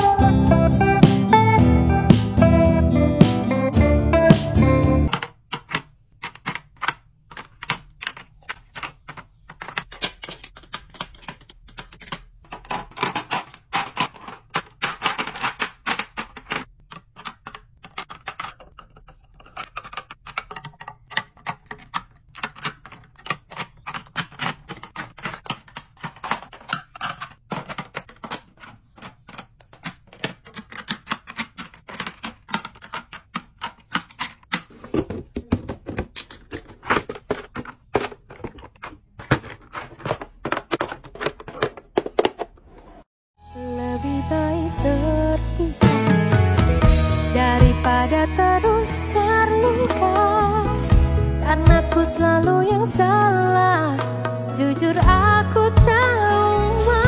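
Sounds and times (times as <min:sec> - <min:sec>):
plastic packaging clicking: 0:05.1 - 0:42.7.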